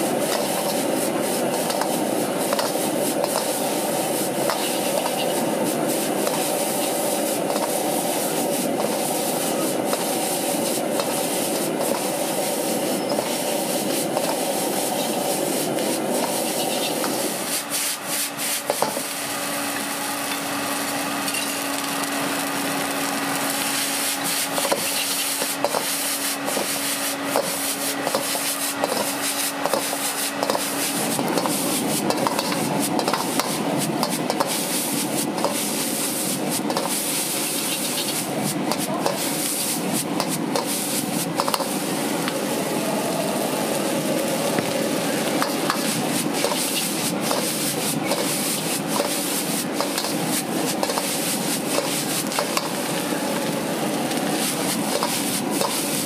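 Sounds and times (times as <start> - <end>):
gas burner rushing: 0.0 - 56.0
metal ladle scraping a wok: 4.5 - 5.4, 8.8 - 18.9, 23.8 - 41.7, 45.4 - 52.8.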